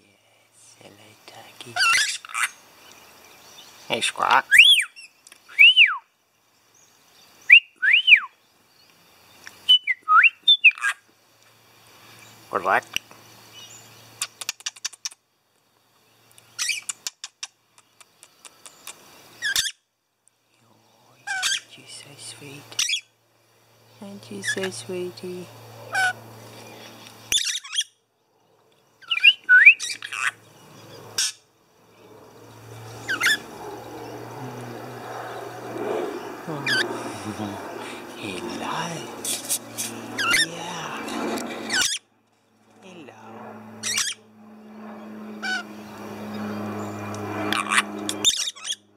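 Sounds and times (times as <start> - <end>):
lorikeets squawking and chirping: 0.8 - 6.0, 6.7 - 11.0, 11.9 - 15.2, 16.2 - 19.9, 20.8 - 23.2, 23.8 - 48.9
harsh chirp: 29.0 - 42.0.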